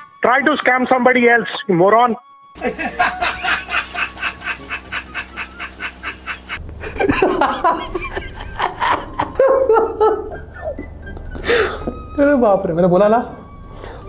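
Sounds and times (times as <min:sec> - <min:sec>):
man laughing in rapid bursts: 0:02.6 - 0:10.8
man laughing unevenly: 0:02.6 - 0:12.0.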